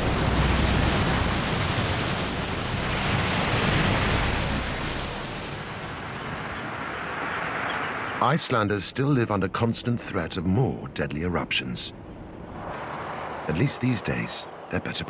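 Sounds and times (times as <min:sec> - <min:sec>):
water surging and churning: 0:00.0 - 0:09.6.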